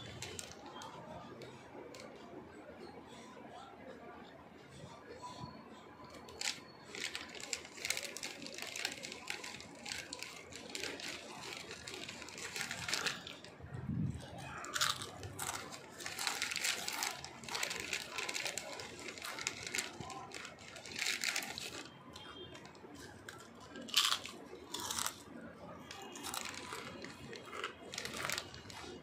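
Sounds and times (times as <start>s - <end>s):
potato chips crunching: 6.2s - 29.0s.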